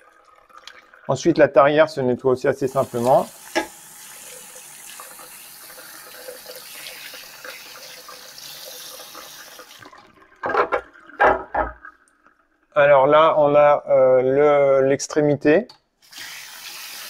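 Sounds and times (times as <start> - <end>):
tap running into sink: 3.0 - 3.8, 10.4 - 11.9
knocks of parts in sink: 3.5 - 3.8, 10.4 - 11.8.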